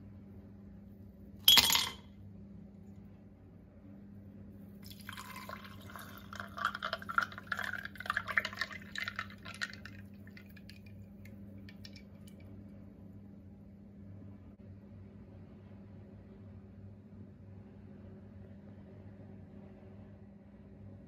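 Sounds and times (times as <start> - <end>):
juice poured over ice: 4.8 - 12.4
dripping liquid: 4.8 - 12.5.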